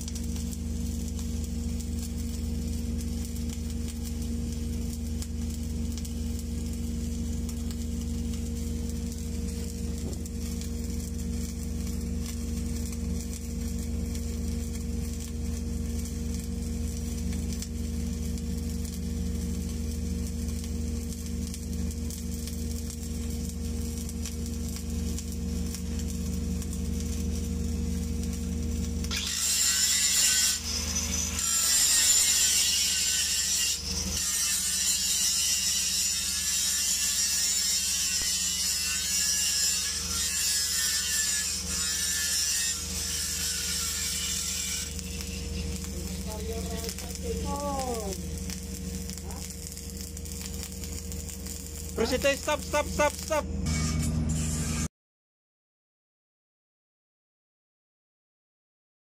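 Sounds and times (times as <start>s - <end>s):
welding arc crackle: 0.0s - 54.9s
welding machine low hum: 0.0s - 54.9s
harsh hissing rattle: 29.1s - 53.4s.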